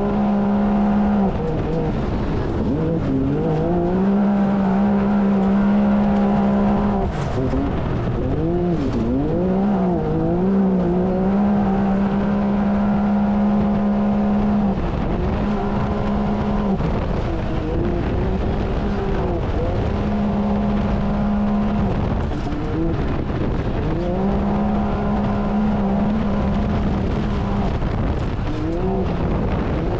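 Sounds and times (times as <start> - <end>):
engine running at high revs: 0.0 - 29.9.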